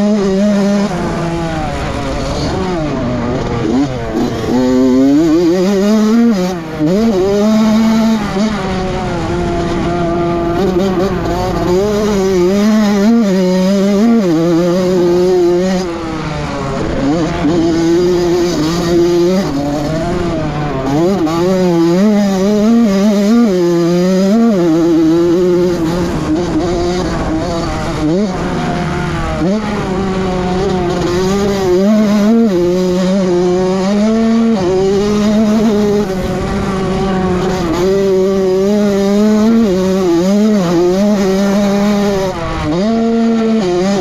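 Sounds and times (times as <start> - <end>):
motocross bike engine revving: 0.0 - 44.0.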